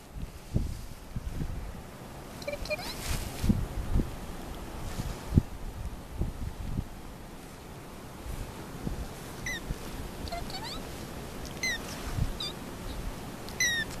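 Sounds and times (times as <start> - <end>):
kitten mewing: 2.4 - 3.0, 9.4 - 14.0.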